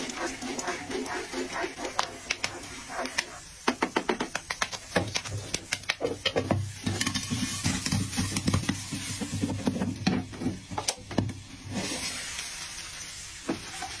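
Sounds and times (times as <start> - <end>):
popcorn popping in a pan: 0.0 - 11.5.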